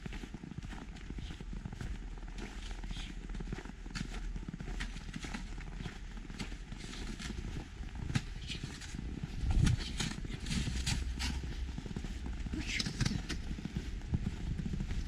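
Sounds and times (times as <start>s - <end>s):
footsteps crunching on snow: 0.0s - 15.0s
low rumble: 6.7s - 15.0s.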